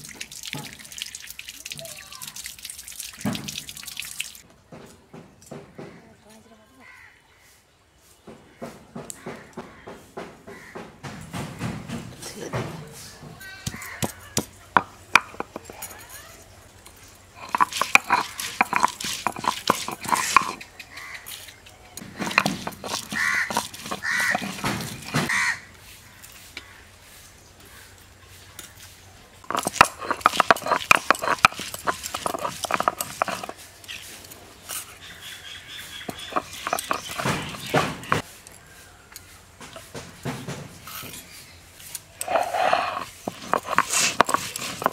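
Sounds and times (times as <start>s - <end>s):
crow cawing: 6.8s - 7.4s, 9.2s - 10.9s, 13.4s - 14.4s, 23.2s - 24.4s, 25.3s - 25.7s
scraping: 12.9s - 25.4s, 28.5s - 35.1s, 35.8s - 44.9s.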